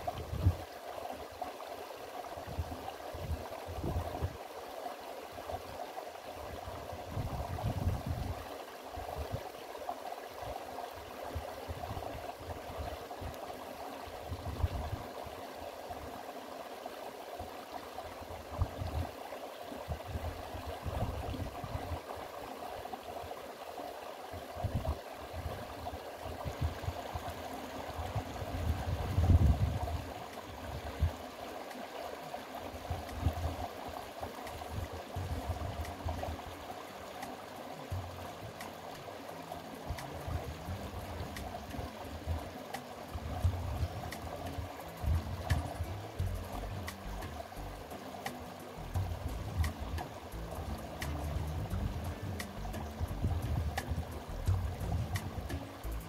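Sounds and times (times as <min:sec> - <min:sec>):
stream flowing over stones: 0:00.0 - 0:56.0
low rumbles: 0:45.1 - 0:47.9, 0:48.8 - 0:56.0.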